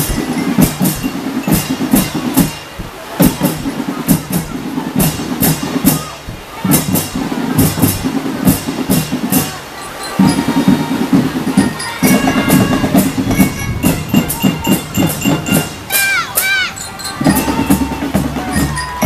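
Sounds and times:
marching drums beating: 0.0 - 19.0
melodica melody notes: 9.8 - 19.0.

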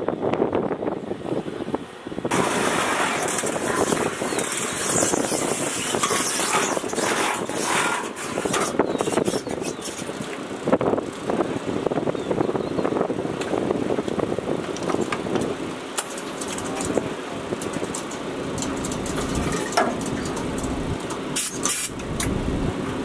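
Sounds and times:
vehicle engine running: 2.3 - 23.0
metallic clicks from fuel nozzle: 21.4 - 22.3.

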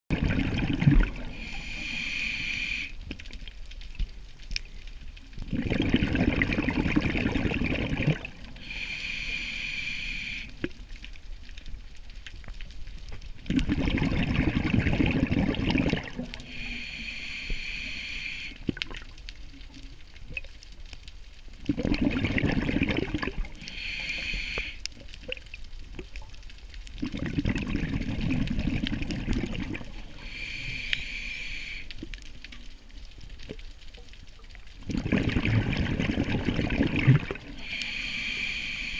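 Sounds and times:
exhaled bubbles rushing: 0.1 - 1.5, 5.4 - 8.7, 13.5 - 16.5, 21.7 - 23.6, 27.0 - 30.3, 34.8 - 37.7
scuba regulator hissing inhale: 1.3 - 3.0, 8.6 - 10.6, 16.4 - 18.7, 23.5 - 24.9, 30.0 - 32.0, 37.5 - 38.9.

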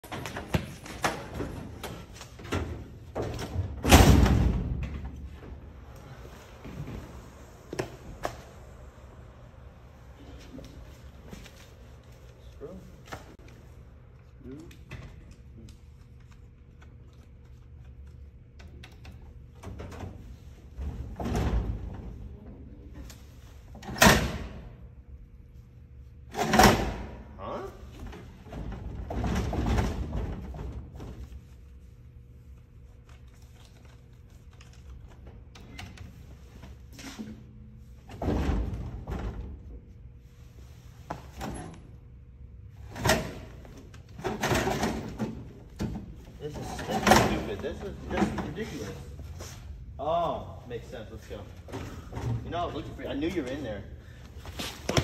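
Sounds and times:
vending machine clunk and rattle: 0.0 - 5.6, 19.5 - 22.3, 26.3 - 27.3, 28.0 - 31.2, 38.0 - 39.7, 42.8 - 48.8.

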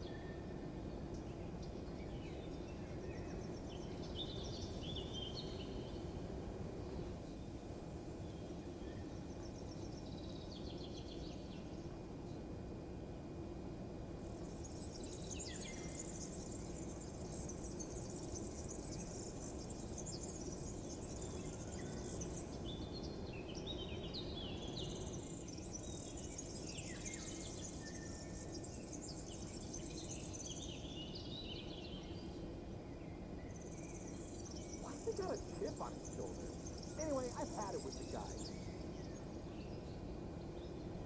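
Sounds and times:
small birds chirping: 0.4 - 12.0, 14.2 - 41.0
low background rumble: 33.8 - 39.2.

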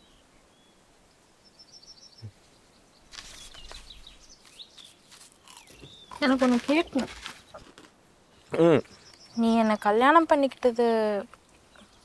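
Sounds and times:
birds chirping: 0.0 - 12.0
paper cone crinkling: 3.1 - 7.9.

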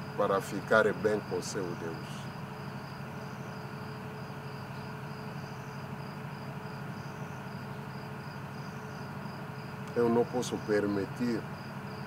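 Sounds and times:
cricket chirping: 0.0 - 12.0.

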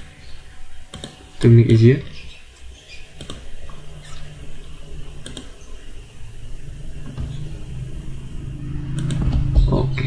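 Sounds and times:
steady low hum: 0.0 - 10.0
computer mouse clicks: 0.9 - 1.2, 3.2 - 3.5, 5.2 - 5.6, 9.0 - 9.3.

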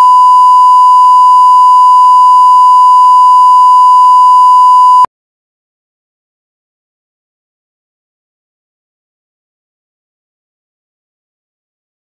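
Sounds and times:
electronic test tone: 0.0 - 5.1.

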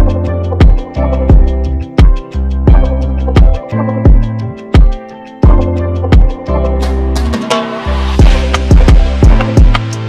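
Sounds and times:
kick drum: 0.0 - 6.4, 8.2 - 9.8
background music: 0.0 - 10.0.

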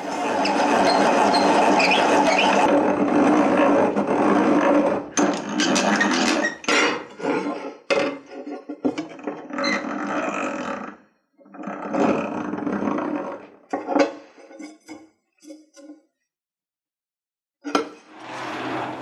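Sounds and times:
drill bit grinding iron: 0.0 - 6.6, 18.1 - 19.0.

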